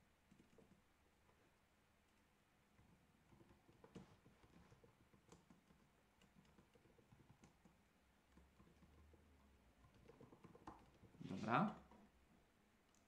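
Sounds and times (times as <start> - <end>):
typing on computer keyboard: 0.3 - 0.8, 3.2 - 9.2.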